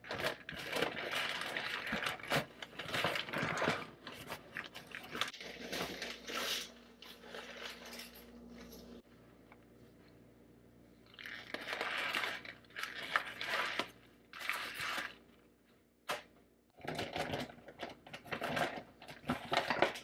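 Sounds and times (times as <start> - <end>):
paper wrapping rustling and crinkling: 0.0 - 9.0, 16.8 - 20.0.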